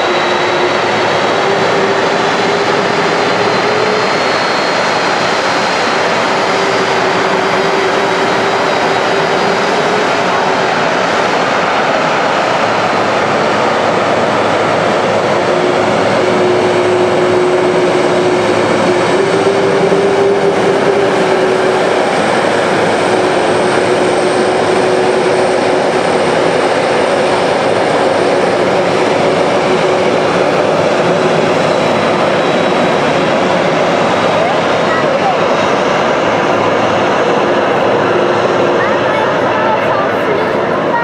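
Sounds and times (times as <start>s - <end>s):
jet engines roaring: 0.0s - 41.0s.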